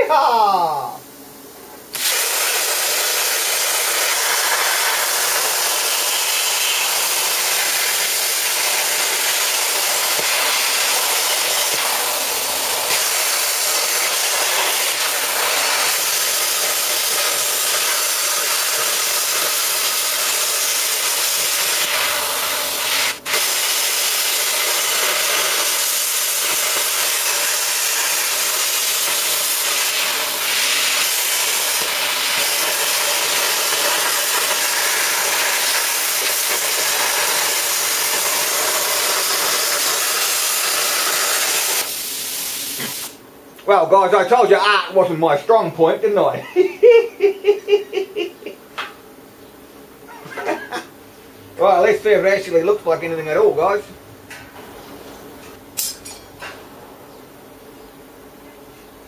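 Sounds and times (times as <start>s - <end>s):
plasma cutter hissing: 1.9s - 43.2s.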